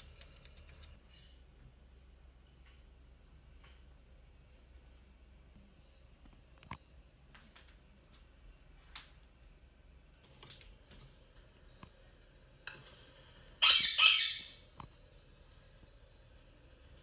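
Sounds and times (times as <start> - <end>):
parakeet squawk: 13.6 - 14.6.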